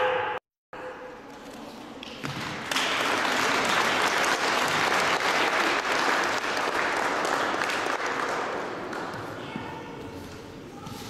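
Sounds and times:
audience applauding: 2.7 - 8.7.

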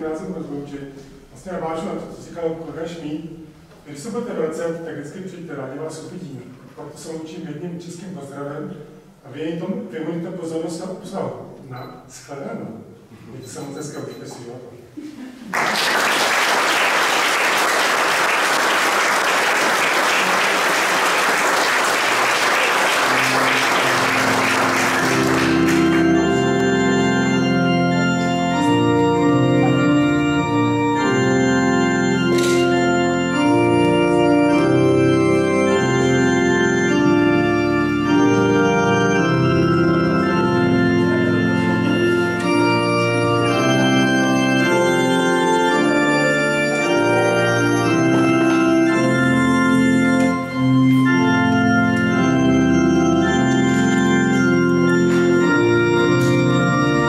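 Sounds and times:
audience applauding: 15.5 - 26.7
organ playing sustained chords: 15.6 - 57.0.

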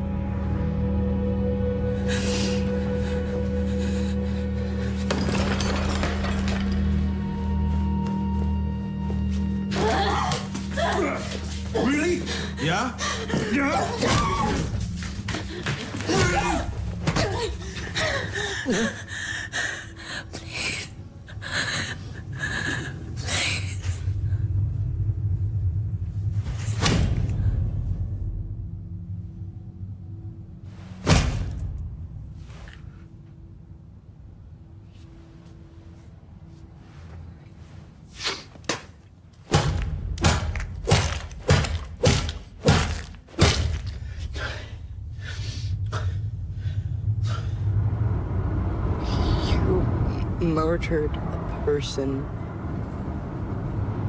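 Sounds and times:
low rumbling drone: 0.0 - 38.0, 39.6 - 54.0
woman gasping and whimpering: 12.3 - 13.5
low steady rumble: 16.7 - 30.9, 43.9 - 54.0.

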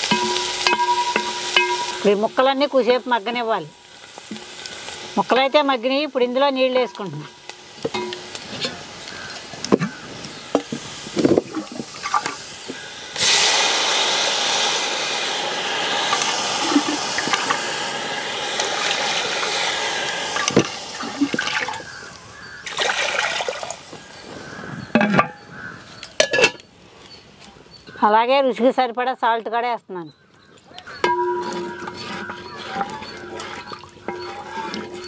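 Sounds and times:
water pouring into metal pot: 0.0 - 5.7, 10.6 - 22.0, 22.6 - 23.9, 31.0 - 35.0.

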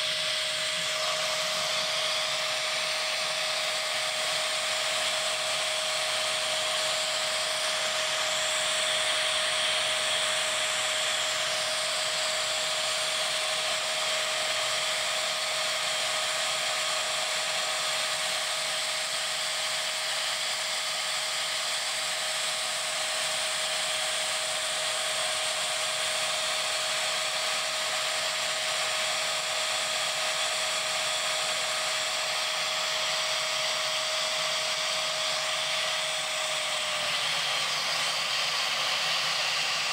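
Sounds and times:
vacuum cleaner motor screaming: 0.0 - 39.9.

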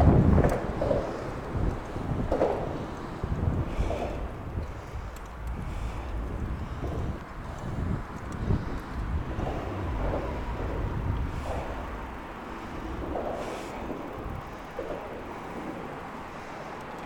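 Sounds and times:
bike tyres rolling on pavement: 0.0 - 17.0
wind buffeting microphone: 0.0 - 17.0.

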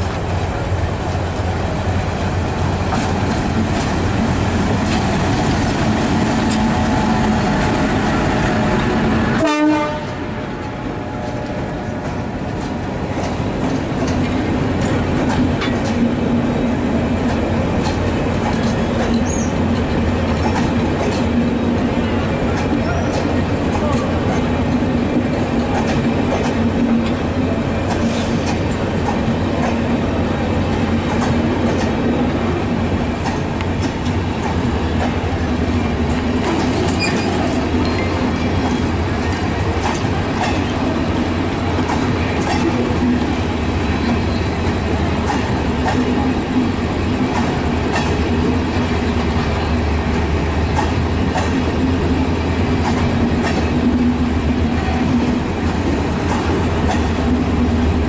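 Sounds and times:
train coaches rumbling past: 0.0 - 58.0
wheels clicking over rail joints: 17.2 - 24.6, 33.2 - 43.3, 44.0 - 58.0.

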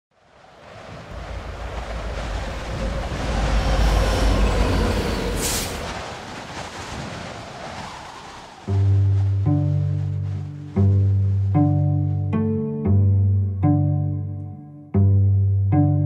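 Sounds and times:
train rumbling past: 0.7 - 6.8
low plucked cello notes: 8.7 - 16.0.

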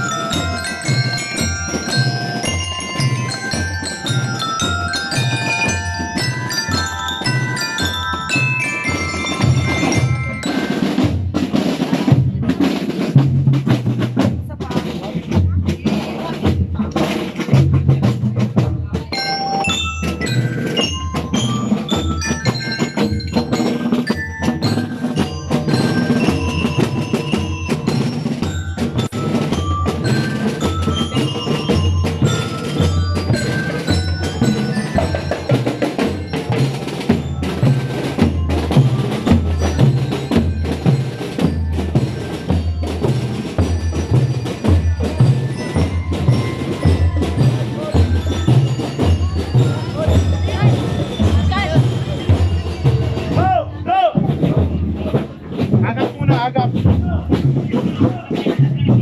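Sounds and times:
bell lyre melody: 0.0 - 12.2, 19.0 - 53.5
marching drums beat: 0.0 - 59.0.

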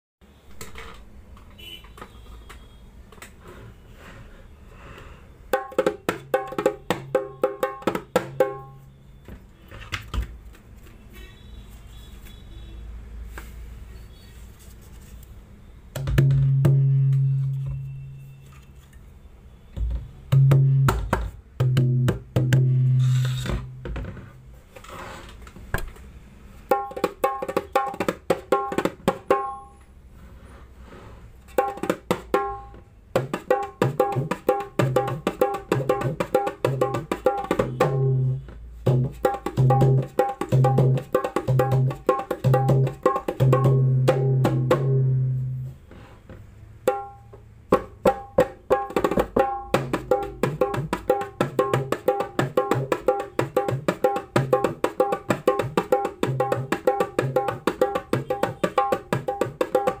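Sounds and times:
hand drum sharp strokes: 31.5 - 45.6, 47.8 - 60.0.

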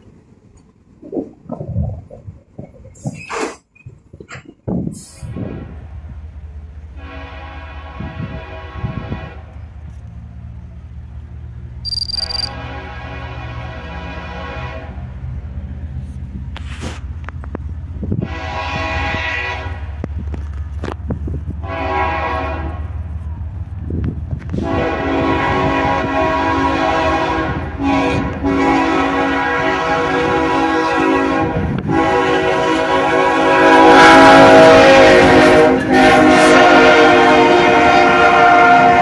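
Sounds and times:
locomotive air horn blasts: 7.0 - 9.6, 11.9 - 15.1, 18.1 - 20.1, 21.6 - 23.1, 24.5 - 39.0.

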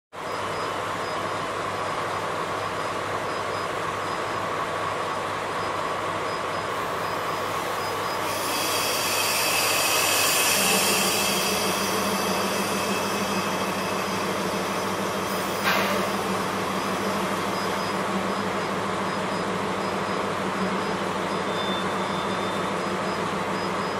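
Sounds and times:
locomotive idling: 6.7 - 23.6
loud hiss of air: 6.8 - 17.6.

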